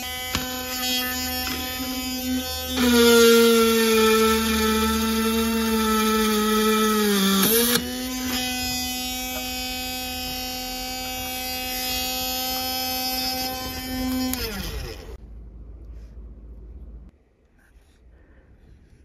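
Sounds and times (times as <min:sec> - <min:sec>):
bit drilling sheet metal: 0:00.0 - 0:15.2
drill press motor whining: 0:00.0 - 0:15.2.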